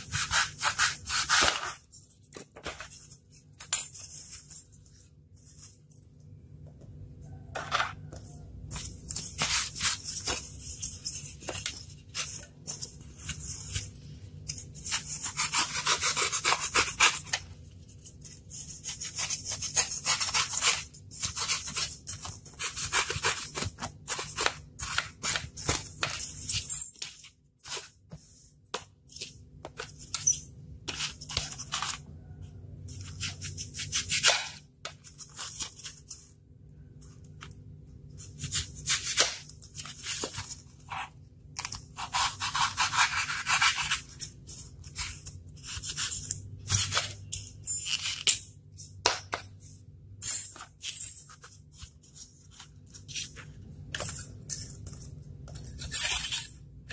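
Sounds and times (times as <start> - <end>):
knife cutting styrofoam: 0.0 - 1.9, 8.8 - 32.0, 33.0 - 36.2, 38.2 - 48.4, 55.5 - 56.9.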